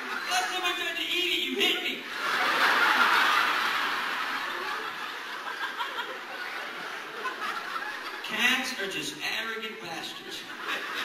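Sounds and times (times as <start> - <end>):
audience laughing: 0.0 - 0.6, 1.6 - 8.3, 10.2 - 11.0.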